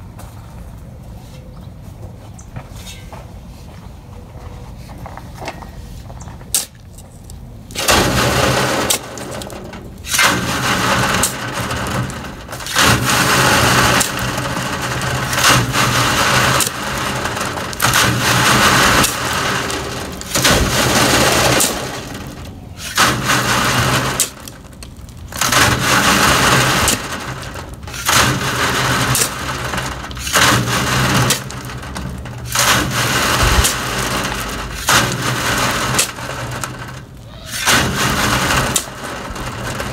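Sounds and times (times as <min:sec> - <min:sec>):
stones rattling down screen: 0:06.4 - 0:39.9.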